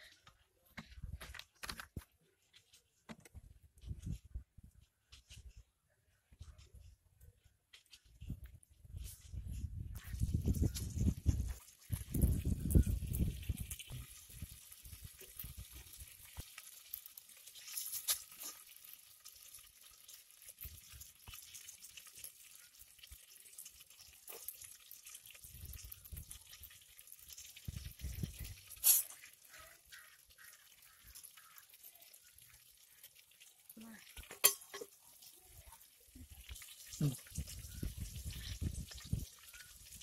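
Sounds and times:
fish sizzling in hot oil: 10.0 - 40.0.

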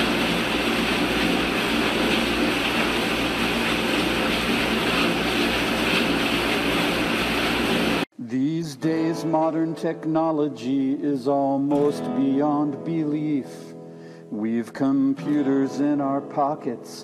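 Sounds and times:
dishwasher motor hum: 0.0 - 8.0
water spraying: 0.0 - 8.1.

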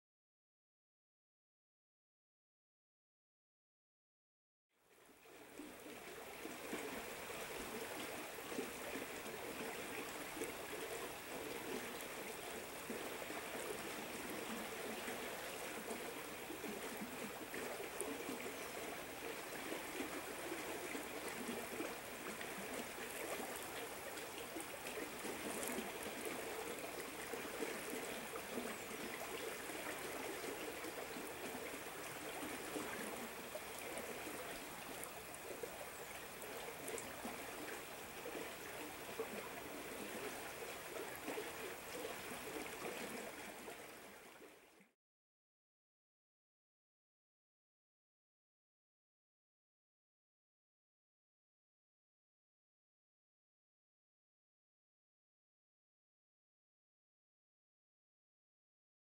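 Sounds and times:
river water flowing: 4.9 - 44.8.

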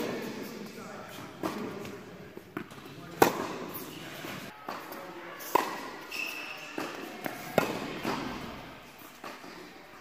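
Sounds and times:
tennis balls struck by rackets: 1.4 - 6.1, 6.7 - 9.8
short high squeak: 6.1 - 6.8.

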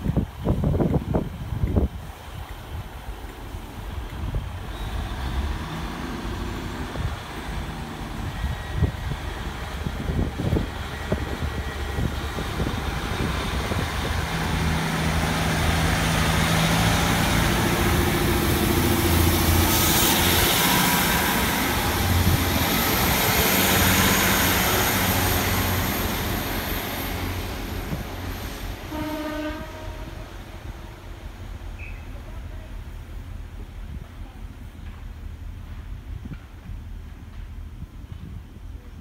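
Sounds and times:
diesel train passing: 0.0 - 39.0
train horn blast: 28.9 - 30.4.

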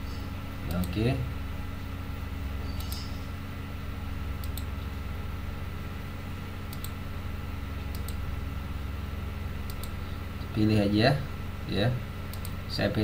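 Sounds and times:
low electrical hum: 0.0 - 13.0
mouse button clicking: 2.7 - 3.1.

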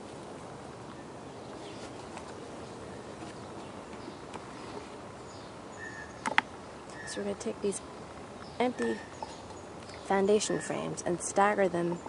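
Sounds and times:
outdoor background noise: 0.0 - 12.0
faint bird chirps: 2.6 - 7.5, 8.4 - 11.0.

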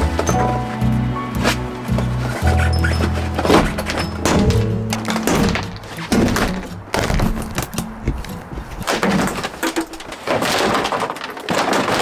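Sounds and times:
knocks and thumps on metal: 3.4 - 10.2.

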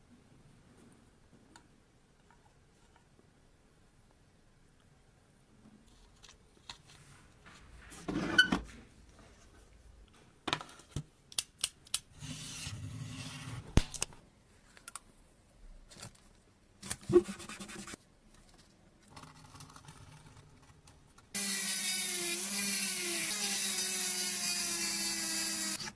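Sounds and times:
sharp clicks and snips: 11.3 - 12.1
scrape on model car: 12.2 - 13.7.

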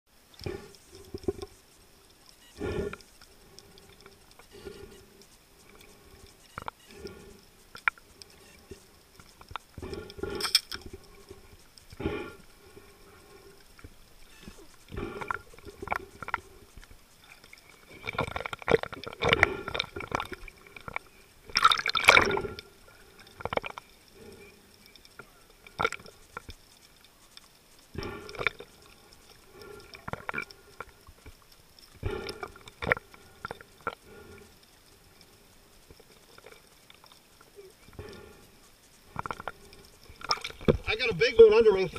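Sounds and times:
water gurgling underwater: 14.2 - 24.4, 38.9 - 41.0.

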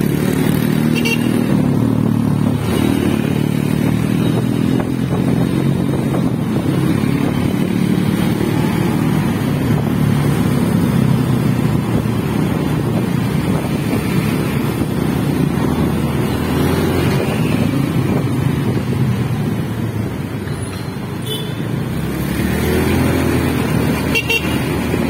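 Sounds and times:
motorcycle engine: 0.0 - 25.0
wind on microphone: 1.5 - 20.1.

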